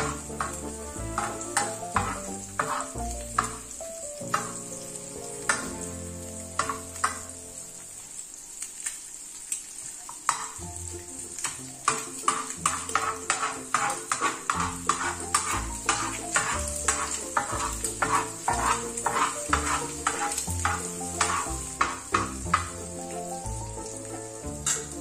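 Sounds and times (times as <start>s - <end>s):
metal spoon scraping a wok: 0.0s - 3.6s, 11.4s - 22.8s
frying oil sizzling: 0.0s - 25.0s.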